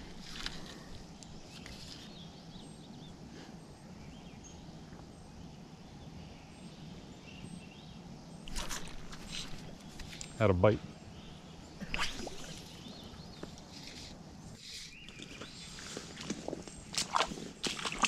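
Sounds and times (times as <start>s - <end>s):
fly line swishing off water: 11.8s - 12.8s.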